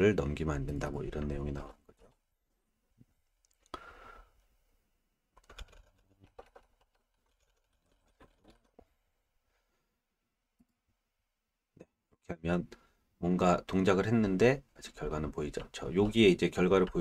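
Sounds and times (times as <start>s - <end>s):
faint typing on computer keyboard: 0.8s - 2.3s, 5.3s - 9.0s, 13.5s - 17.0s.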